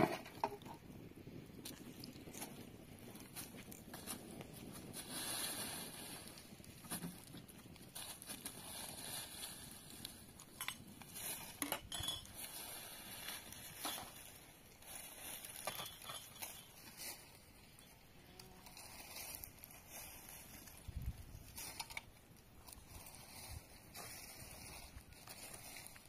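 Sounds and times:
metal dishes and utensils clinking: 0:11.5 - 0:12.4, 0:15.6 - 0:16.8.

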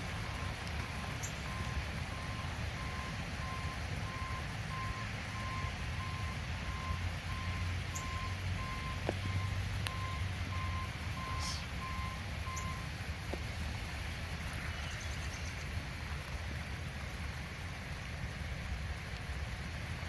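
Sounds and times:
truck engine rumble: 0:00.0 - 0:19.5
backup alarm beeping: 0:01.5 - 0:12.8.

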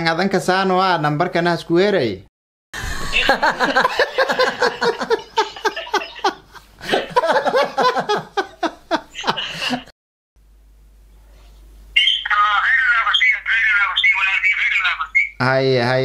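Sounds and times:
men laughing hard: 0:02.8 - 0:09.9.

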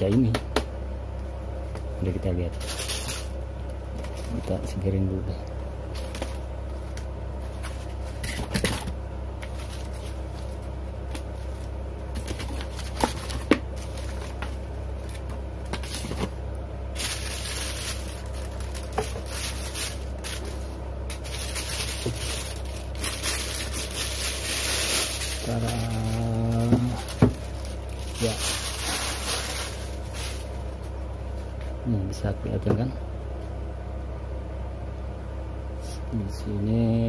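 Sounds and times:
low hum: 0:00.0 - 0:37.0
plastic bag crinkling: 0:02.6 - 0:03.4, 0:16.9 - 0:30.9.

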